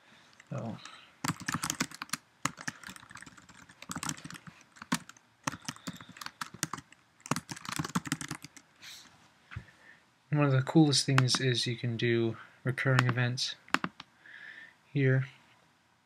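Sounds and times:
typing on computer keyboard: 0.4s - 8.6s, 13.0s - 14.0s.

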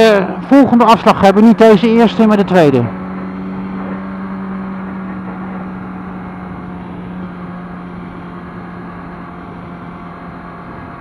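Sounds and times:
motorcycle engine droning: 0.0s - 11.0s
wind and road noise: 0.0s - 11.0s.

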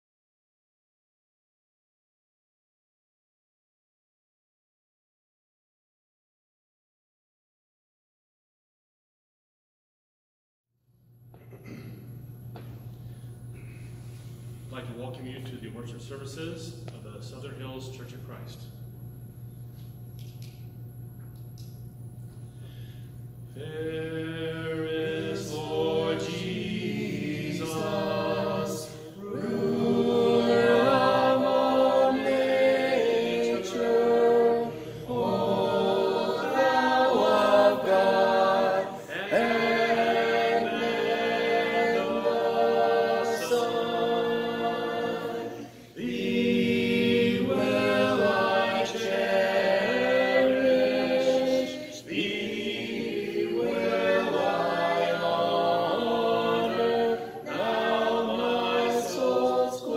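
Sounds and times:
group singing a hymn: 22.7s - 59.9s.

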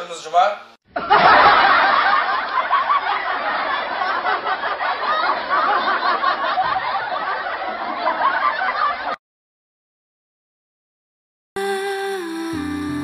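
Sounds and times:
laugh track: 1.0s - 9.2s.

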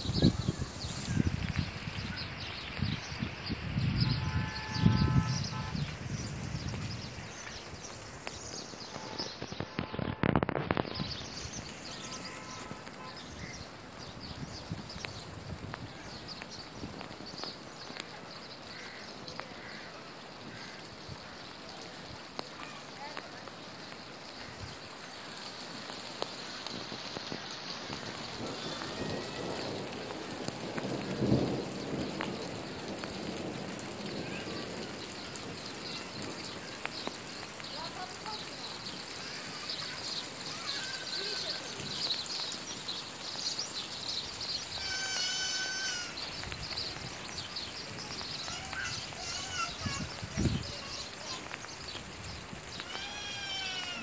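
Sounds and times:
rain falling: 0.0s - 54.0s
small birds chirping: 0.0s - 54.0s.

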